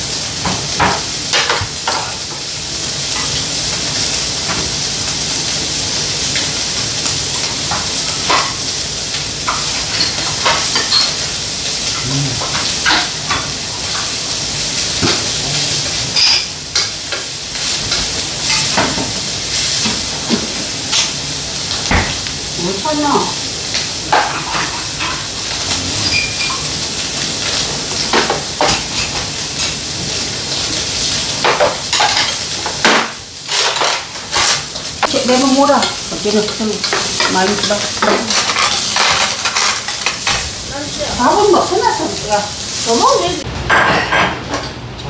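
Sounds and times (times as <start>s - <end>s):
beef sizzling in a frying pan: 0.0s - 43.5s
chopsticks scraping a pan: 24.1s - 26.8s.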